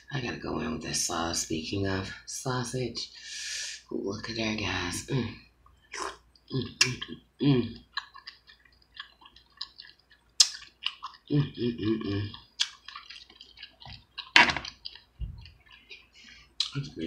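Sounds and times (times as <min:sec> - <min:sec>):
lip smacks: 0:07.8 - 0:11.3, 0:12.3 - 0:16.8
wet chewing: 0:07.8 - 0:16.9
mouth clicks: 0:10.4 - 0:11.6.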